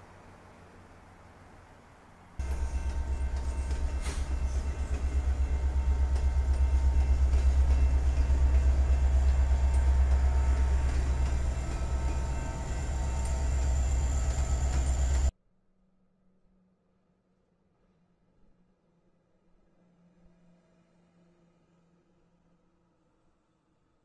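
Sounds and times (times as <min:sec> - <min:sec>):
freight train rumbling past: 0:00.0 - 0:15.3.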